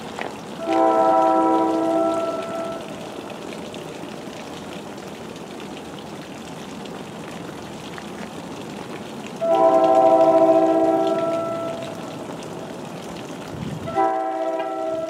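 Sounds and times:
faint drips: 0.0s - 15.0s
rain hissing: 0.0s - 15.0s
locomotive air horn: 0.6s - 2.9s, 9.4s - 12.0s, 13.8s - 15.0s.

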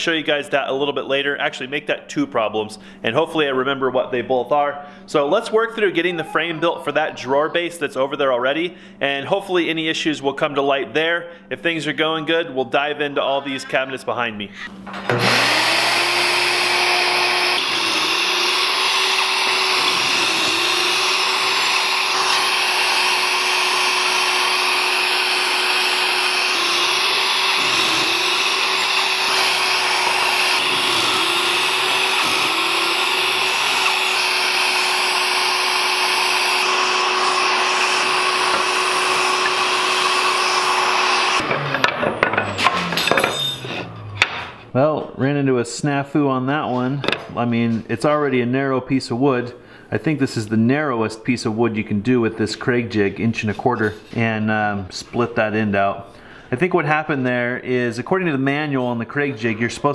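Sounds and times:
shop vacuum running: 0.0s - 45.0s
wooden boards knocking: 44.2s - 44.6s.

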